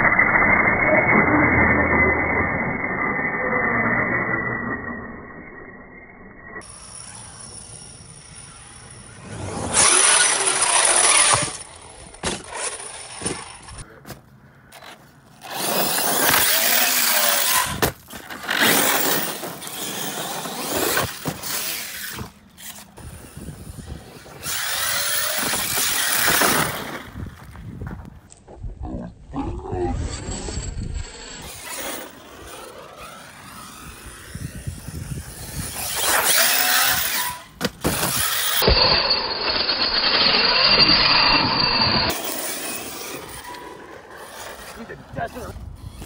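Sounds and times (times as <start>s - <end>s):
rc car electric motor whining: 0.0s - 13.8s, 15.4s - 27.4s, 29.9s - 46.0s
tyres churning loose dirt: 14.8s - 27.6s.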